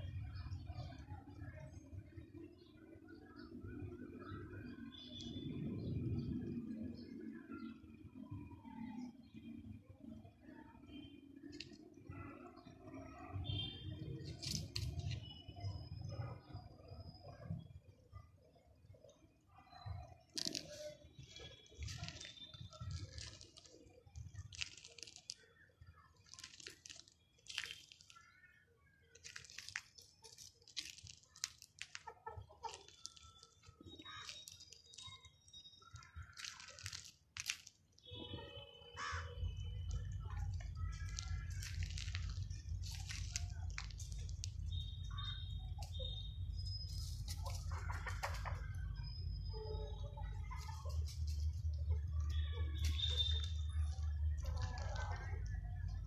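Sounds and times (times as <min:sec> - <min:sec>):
sharp clicks and rustles: 0:20.3 - 0:25.5, 0:26.2 - 0:28.4, 0:29.1 - 0:38.0, 0:39.4 - 0:46.0.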